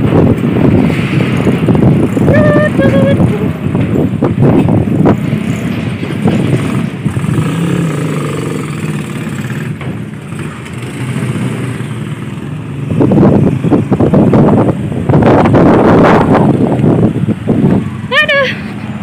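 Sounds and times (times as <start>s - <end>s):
rush of noise: 0.0s - 19.0s
scooter engines passing: 0.0s - 19.0s.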